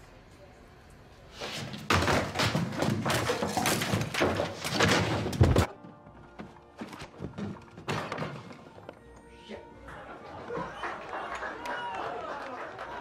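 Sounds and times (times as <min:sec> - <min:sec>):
quieter music: 0:04.8 - 0:13.0.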